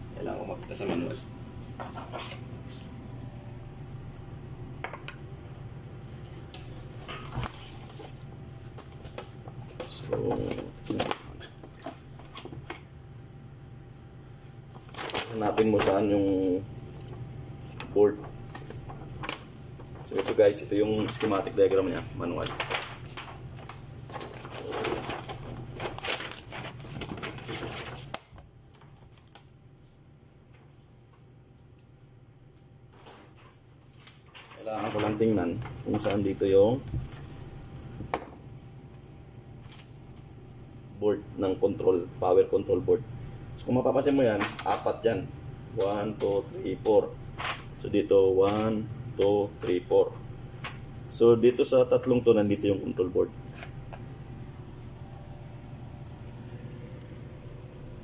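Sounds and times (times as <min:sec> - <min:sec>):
steady low hum: 0:00.0 - 0:58.0
paper pages rustling: 0:01.7 - 0:02.9, 0:06.2 - 0:12.8, 0:14.7 - 0:29.5, 0:32.9 - 0:37.8, 0:39.6 - 0:40.3, 0:51.7 - 0:53.8.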